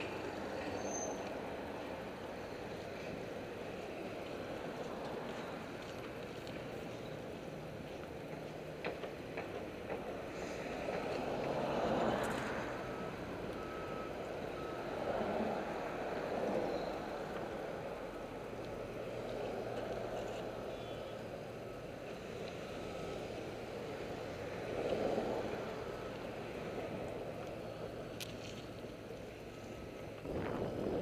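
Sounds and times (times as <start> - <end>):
city traffic: 0.0 - 31.0
vehicle backup alarm beeping: 11.4 - 27.0
wind on microphone: 30.2 - 31.0.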